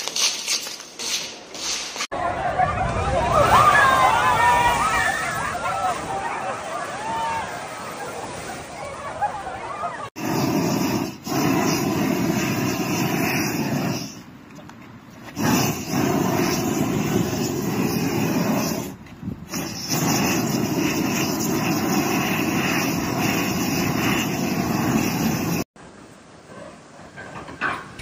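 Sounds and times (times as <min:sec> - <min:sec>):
gas torch flame rushing: 0:10.2 - 0:14.3, 0:15.3 - 0:25.7.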